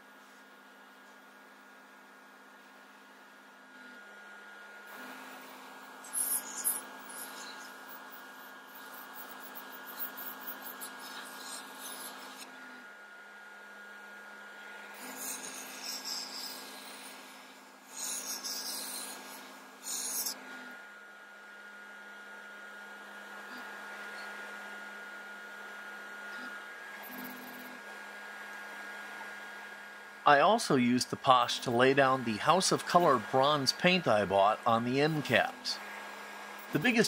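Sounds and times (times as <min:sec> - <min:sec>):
steady low hum: 0:00.0 - 0:37.0
airbrush spraying paint: 0:06.0 - 0:12.4, 0:14.9 - 0:20.4.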